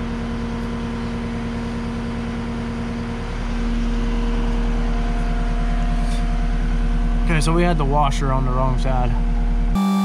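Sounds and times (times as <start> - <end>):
diesel engine running: 0.0 - 9.8.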